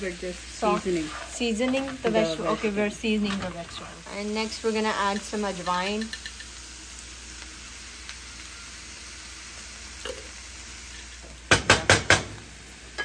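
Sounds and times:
vegetables sizzling in a frying pan: 0.0s - 13.0s
wooden spatula scraping a pan: 0.6s - 4.3s.

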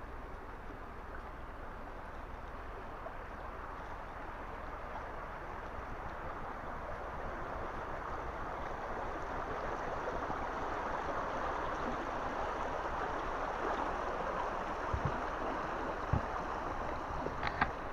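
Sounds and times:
stream rushing over rocks: 0.0s - 17.9s
short low thumps: 14.9s - 15.2s.

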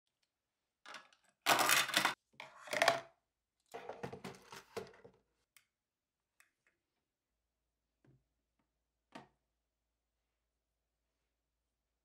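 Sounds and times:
pens and plastic clattering: 0.9s - 3.1s, 3.7s - 5.2s.

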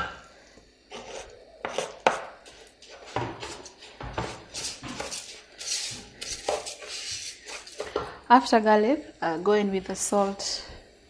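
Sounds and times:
wooden spoon scraping board: 0.9s - 8.0s
wooden spoon scraping pot: 0.9s - 8.2s.

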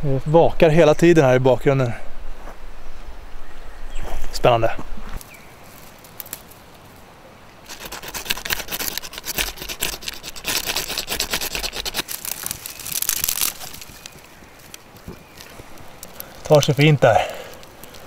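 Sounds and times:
fire steel rasping strokes: 7.7s - 12.5s.

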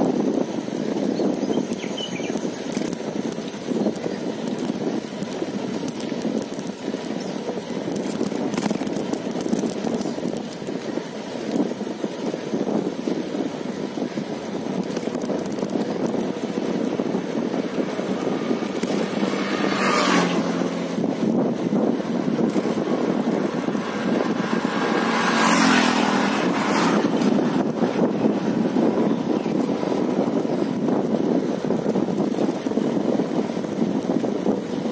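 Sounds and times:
auto-rickshaw engine: 0.0s - 34.9s
wind rush over microphone: 0.0s - 34.9s
motor vehicle passing: 13.8s - 33.8s.

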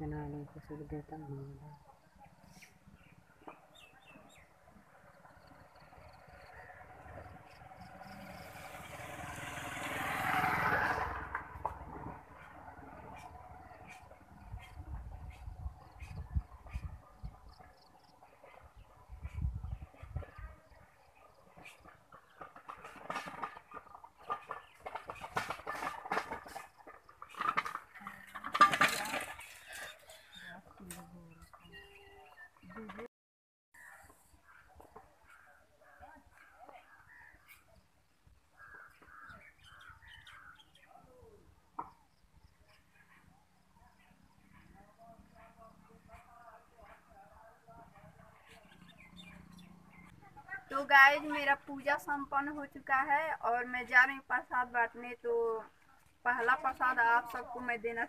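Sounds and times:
motor vehicle passing: 2.5s - 28.4s, 38.2s - 52.4s.

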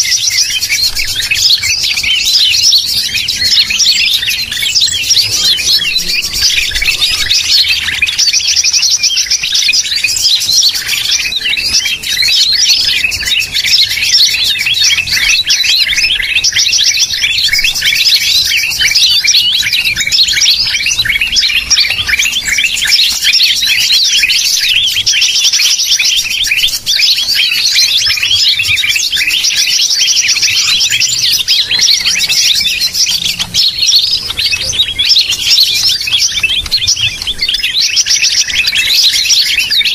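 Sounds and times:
bird chirps and whistled calls: 0.0s - 39.9s
fast even bird trill: 0.0s - 39.9s.

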